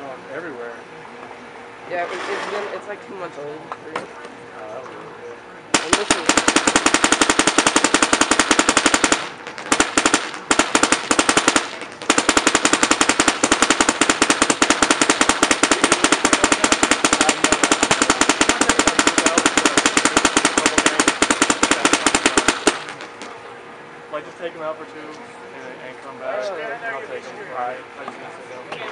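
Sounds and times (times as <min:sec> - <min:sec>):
paintball marker firing: 0:05.8 - 0:23.3.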